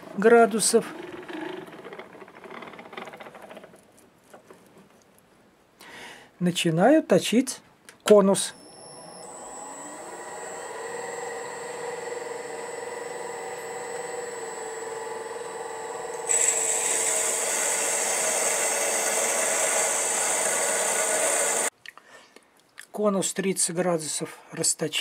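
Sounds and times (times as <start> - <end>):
lathe spindle humming: 8.6 - 21.7
lathe tool scraping metal: 9.2 - 21.7.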